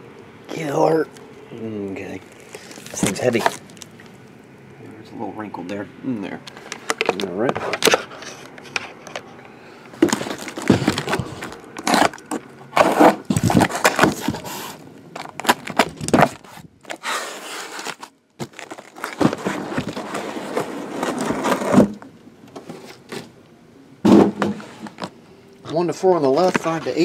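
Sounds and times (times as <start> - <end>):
cardboard scraping and rustling: 2.3 - 3.7, 10.0 - 23.4, 24.0 - 25.1, 26.2 - 27.0.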